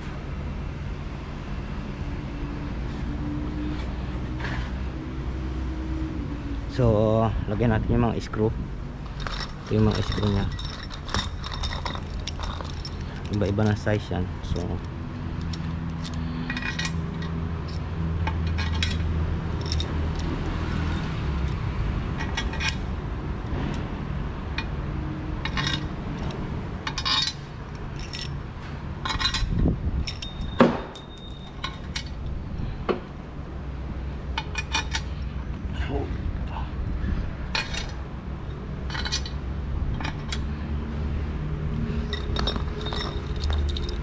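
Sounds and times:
metal screws clinking: 9.1s - 13.8s, 15.4s - 21.6s, 22.2s - 22.9s, 25.4s - 28.4s, 29.0s - 32.3s, 34.4s - 35.3s, 37.5s - 38.0s, 38.9s - 39.4s, 42.0s - 44.0s.

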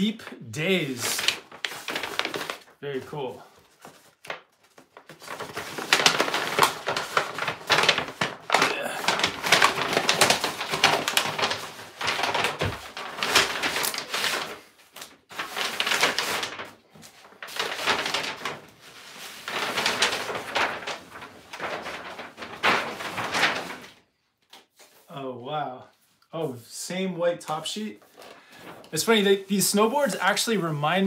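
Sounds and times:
paper envelope rustling: 0.6s - 25.1s.

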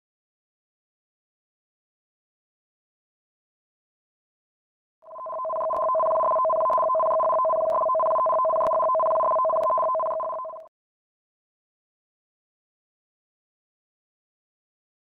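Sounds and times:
electronic two-tone alert: 5.1s - 10.7s.

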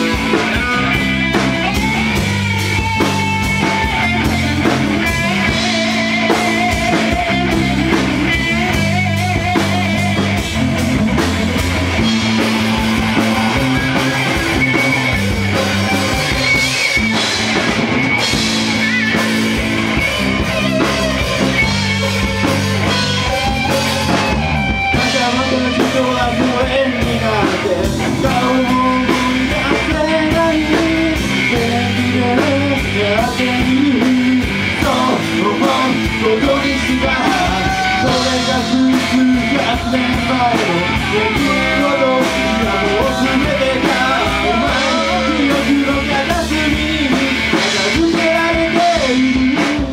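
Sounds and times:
electric bass: 0.0s - 49.9s
electric guitar: 0.0s - 49.9s
person singing: 24.9s - 49.9s.

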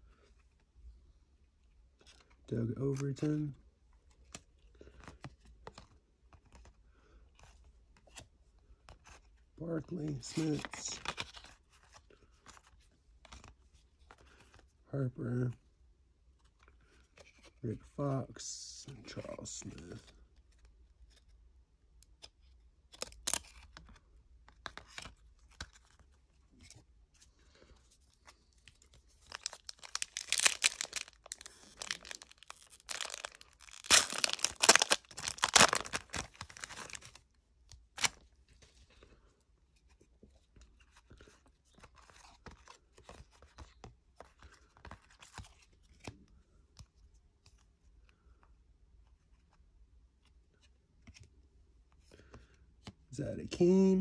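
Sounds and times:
cards clicking and rustling: 10.0s - 14.6s, 22.1s - 26.8s, 28.2s - 38.2s
foil pack tearing: 29.3s - 37.0s.

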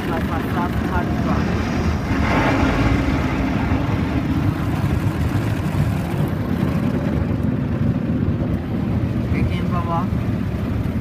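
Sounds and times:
car wash brushes churning: 0.0s - 8.5s.

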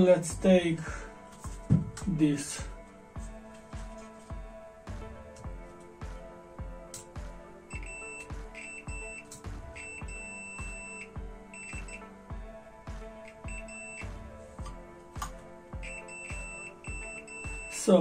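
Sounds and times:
background music with steady beat: 0.0s - 18.0s
multimeter continuity buzzer beeping: 7.7s - 12.1s, 13.2s - 14.2s, 15.8s - 17.8s.

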